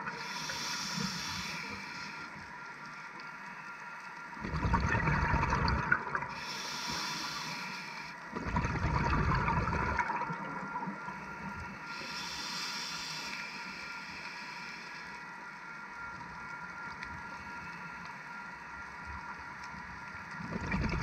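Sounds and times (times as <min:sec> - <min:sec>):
regulator inhalation hiss: 0:00.1 - 0:03.8, 0:06.3 - 0:08.3, 0:11.1 - 0:15.5
bubbling exhalations underwater: 0:04.4 - 0:06.3, 0:08.4 - 0:10.4, 0:20.5 - 0:21.0.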